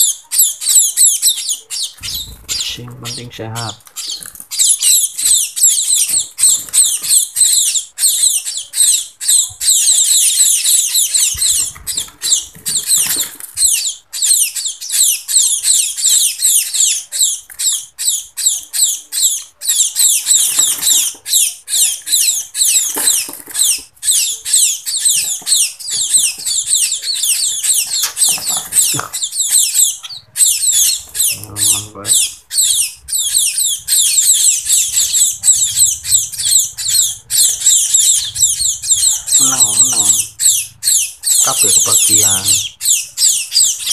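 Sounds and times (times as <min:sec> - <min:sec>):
fledglings chirping rapidly: 0:00.0 - 0:43.9.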